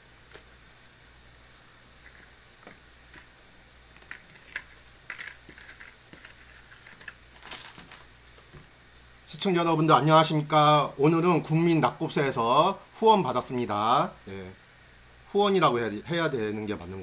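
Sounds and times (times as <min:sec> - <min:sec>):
faint steady low hum: 0:00.0 - 0:17.0
small items clicking on tabletop: 0:03.9 - 0:08.1.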